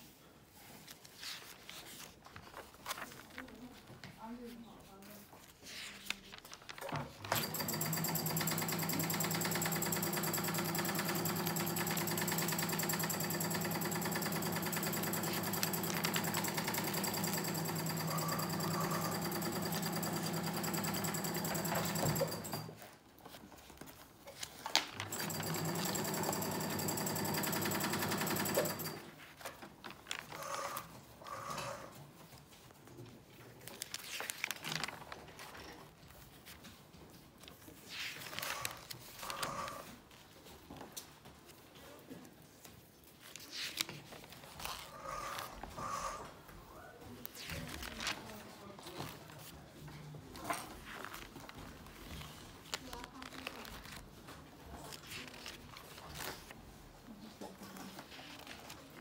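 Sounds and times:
notebook pages turning: 0.8s - 4.2s, 5.1s - 7.6s, 23.2s - 25.8s, 29.2s - 30.8s, 33.4s - 36.8s, 37.4s - 40.2s, 43.2s - 46.0s, 47.2s - 49.6s, 50.3s - 56.6s, 57.6s - 59.0s
sewing machine running: 7.3s - 22.8s, 25.0s - 29.1s.

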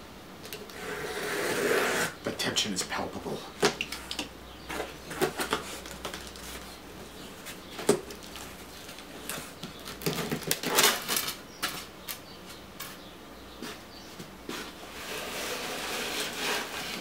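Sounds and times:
crinkly foam scraping: 14.5s - 17.0s.

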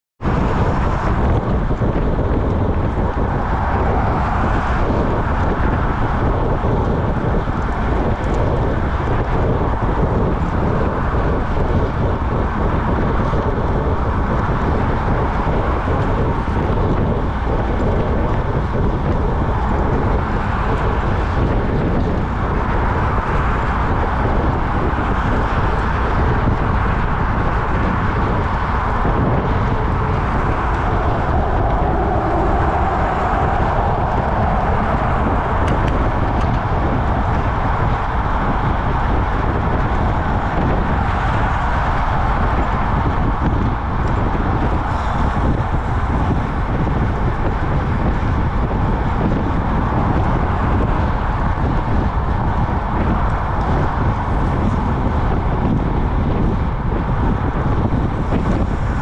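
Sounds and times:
bicycle road noise: 0.2s - 59.0s
wind rushing on microphone: 0.2s - 59.0s.

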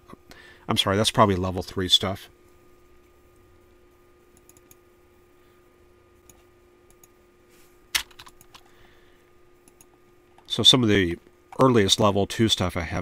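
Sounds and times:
faint electrical hum: 0.0s - 13.0s
computer mouse clicks: 4.4s - 4.8s, 6.2s - 7.2s, 9.6s - 10.5s.

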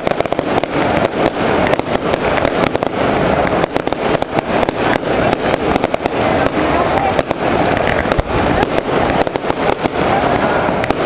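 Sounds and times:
constant rumble: 0.0s - 11.0s
fireworks cracking and popping: 0.0s - 11.0s.

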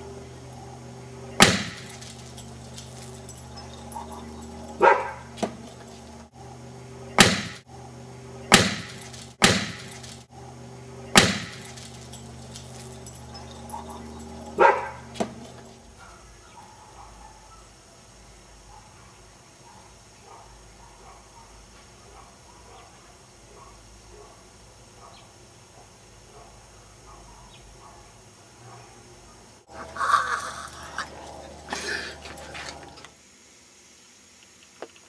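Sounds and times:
dogs barking: 0.0s - 18.0s, 18.6s - 33.0s
steady low hum: 0.0s - 34.7s.

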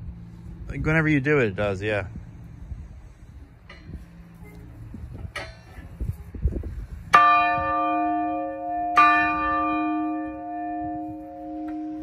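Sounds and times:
church bell ringing: 7.1s - 12.0s.

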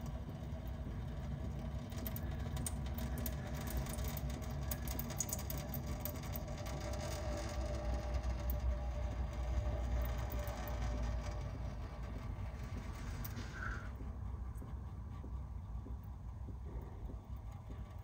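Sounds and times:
steady low hum: 0.0s - 18.0s
water trickling into a steel sink: 1.9s - 11.4s.

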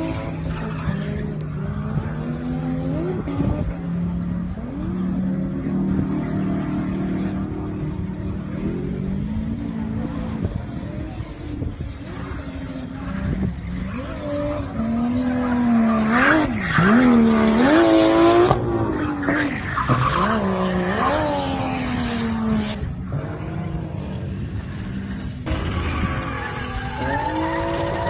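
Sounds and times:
car engine revving: 0.0s - 28.0s
tyre screech: 25.4s - 28.0s.

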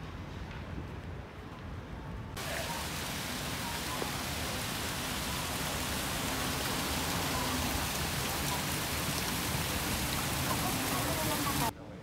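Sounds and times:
water splashing down fountain wall: 2.4s - 11.7s.

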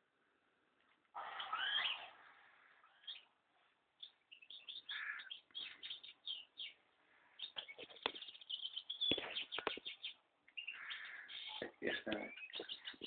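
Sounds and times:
young bird chirping: 1.2s - 2.2s, 2.8s - 3.4s, 4.0s - 13.0s
sharp clicks: 9.0s - 10.6s.

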